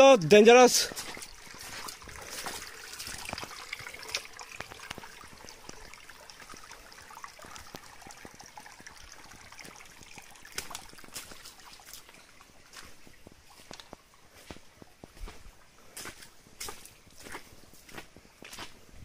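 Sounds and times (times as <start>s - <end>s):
stream trickling over stones: 0.0s - 18.8s
footsteps on wet rocks: 0.2s - 5.8s, 9.6s - 19.0s.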